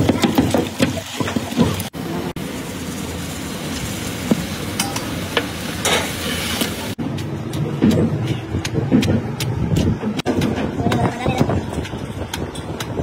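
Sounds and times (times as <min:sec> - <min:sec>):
pestle pounding in stone mortar: 0:00.0 - 0:01.9, 0:07.0 - 0:13.0
stock boiling and bubbling: 0:00.0 - 0:13.0.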